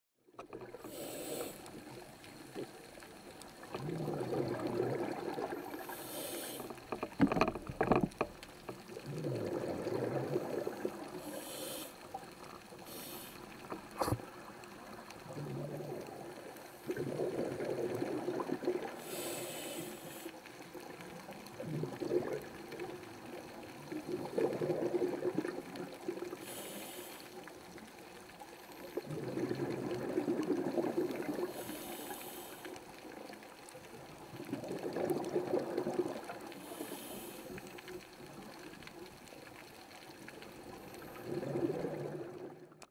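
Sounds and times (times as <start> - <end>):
exhaled bubbles underwater: 0.3 - 42.9
regulator breath hiss: 0.8 - 1.8, 5.8 - 6.8, 11.2 - 12.2, 12.8 - 14.2, 19.0 - 20.4, 26.4 - 27.4, 31.5 - 32.8, 36.6 - 37.8.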